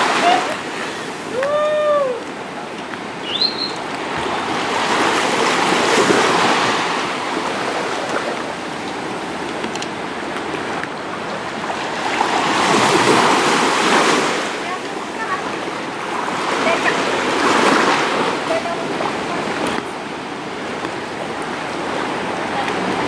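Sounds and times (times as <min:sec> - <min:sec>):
waves washing on shore: 0:00.0 - 0:23.0
short high chirp: 0:03.2 - 0:03.8.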